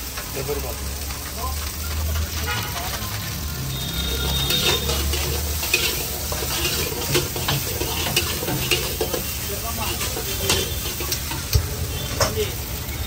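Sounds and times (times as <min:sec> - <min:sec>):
food sizzling: 0:00.0 - 0:13.0
steel ladle scraping a wok: 0:02.2 - 0:12.6.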